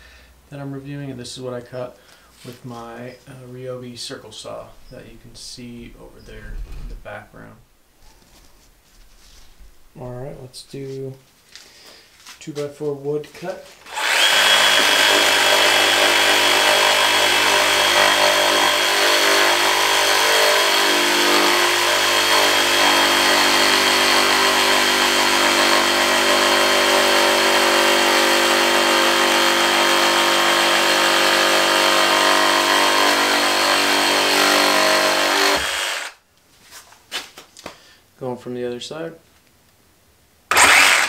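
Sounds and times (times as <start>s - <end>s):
saw blade cutting wood: 13.8s - 36.2s, 40.5s - 41.0s
reciprocating saw motor whine: 13.9s - 18.9s, 40.5s - 41.0s.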